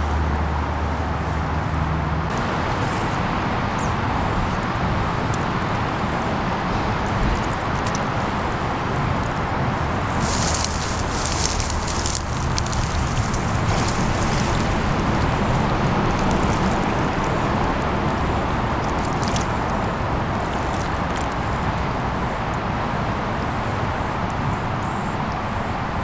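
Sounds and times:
loud outdoor rushing noise: 0.0s - 26.0s
deep uneven rumble: 1.0s - 23.2s
faint crackle: 10.2s - 14.8s.

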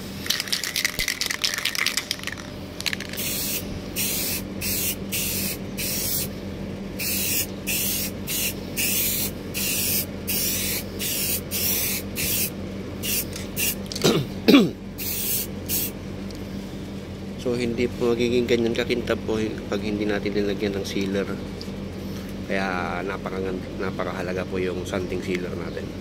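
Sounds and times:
aerosol spray can hissing: 3.0s - 6.3s, 7.0s - 13.8s, 15.0s - 15.9s.

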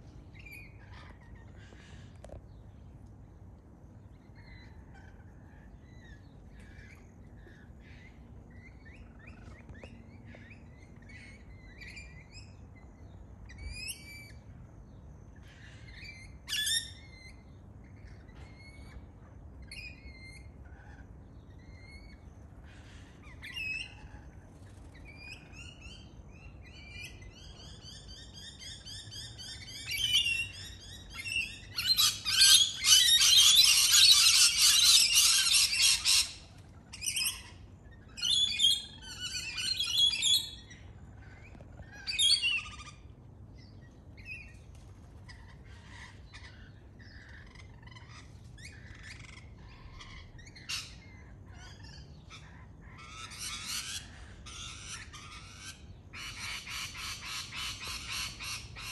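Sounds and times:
lorikeets screeching: 0.3s - 2.4s, 4.1s - 14.6s, 15.3s - 58.9s.

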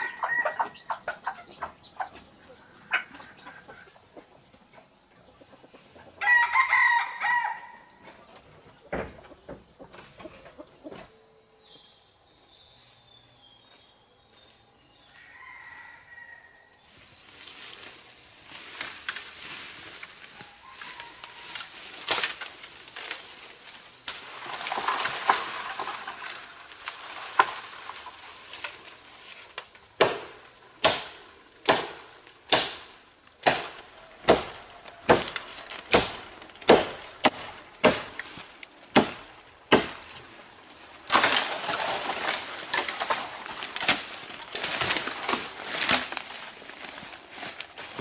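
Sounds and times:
rustling leaves and branches: 0.0s - 48.0s
machete chopping wood: 30.0s - 40.2s.

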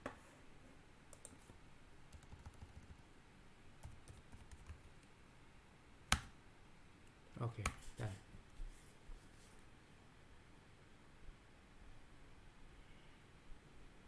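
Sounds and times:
keyboard typing: 2.1s - 3.0s, 3.8s - 5.1s.

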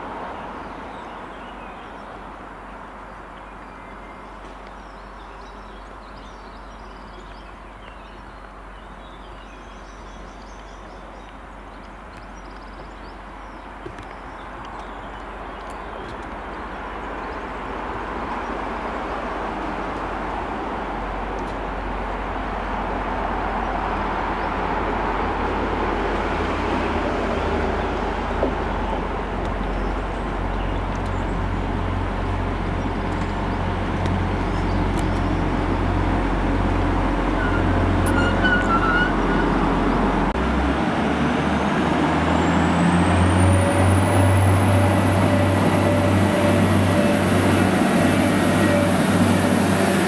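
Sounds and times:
train engine drone: 18.2s - 50.0s
high squeal: 37.4s - 39.9s, 43.4s - 50.0s.

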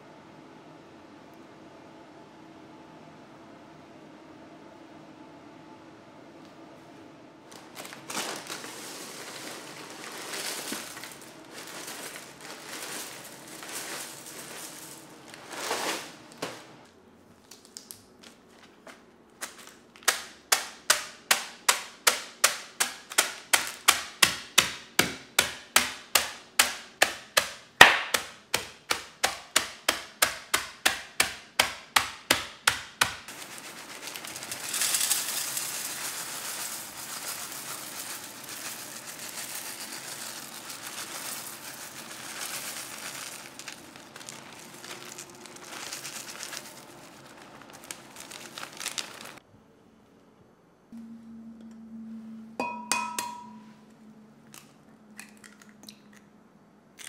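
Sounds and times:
corn flakes crushing: 7.5s - 16.6s, 19.4s - 24.8s, 25.4s - 49.4s
rolling pin pounding plastic bag: 7.5s - 16.8s, 19.4s - 49.4s
corn flakes pouring into metal pan: 7.6s - 16.2s, 33.3s - 49.4s.

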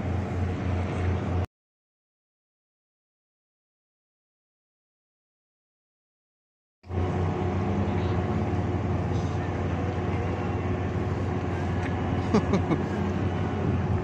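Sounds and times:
motorboat engine running: 0.0s - 1.4s, 6.8s - 14.0s.

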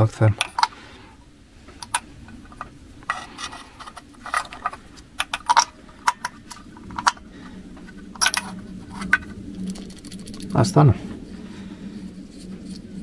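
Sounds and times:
spark plug boots clicking and rattling: 8.2s - 10.6s.

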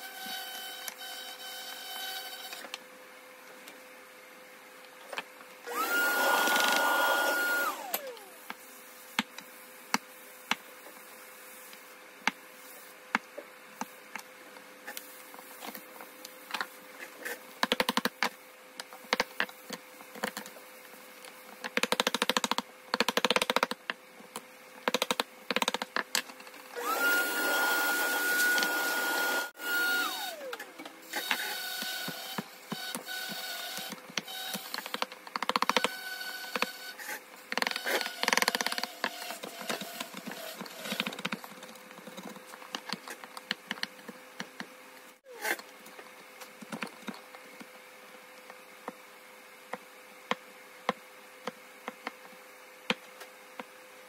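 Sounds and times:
small power tool motor whirring: 5.7s - 8.4s, 26.7s - 35.0s.

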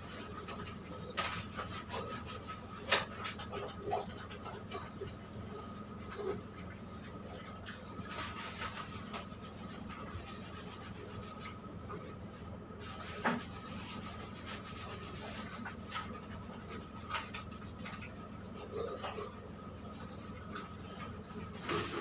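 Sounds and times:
machine hum with high whine: 0.0s - 22.0s
hands rubbing wet fur: 7.1s - 19.3s.

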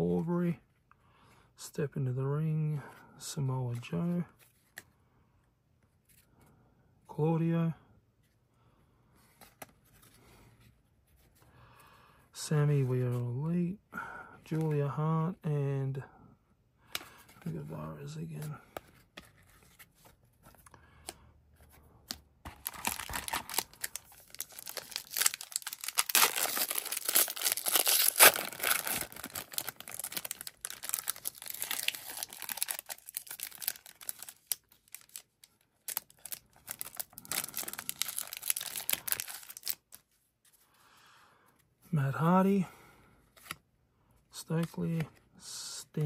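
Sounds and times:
wrapper tearing and crinkling: 22.6s - 39.9s.

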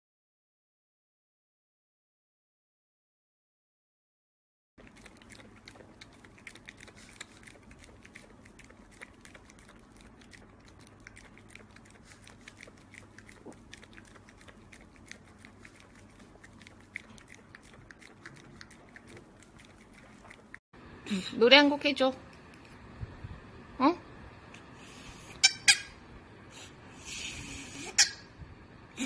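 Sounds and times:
dog lapping liquid: 4.8s - 20.6s.

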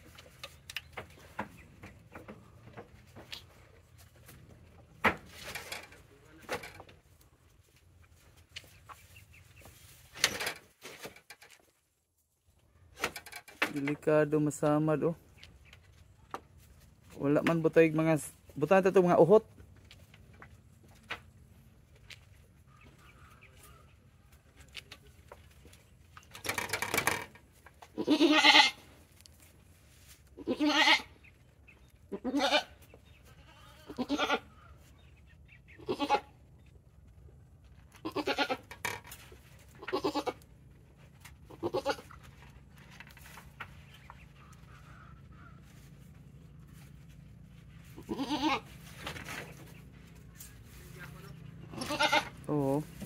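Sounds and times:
goat bleating: 27.8s - 29.0s, 30.3s - 31.2s, 32.1s - 34.8s, 35.7s - 36.4s, 37.9s - 38.7s, 39.7s - 40.5s, 41.4s - 42.3s, 47.8s - 49.0s, 51.6s - 52.5s.

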